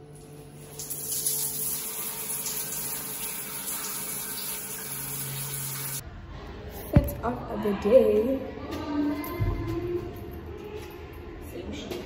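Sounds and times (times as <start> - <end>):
shower spraying on tiles: 0.3 - 6.0.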